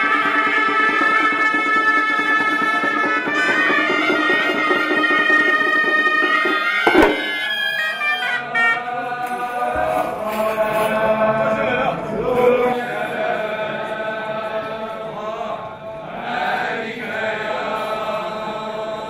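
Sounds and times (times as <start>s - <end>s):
reedy shawms playing: 1.4s - 9.2s
voices chanting: 6.4s - 19.0s.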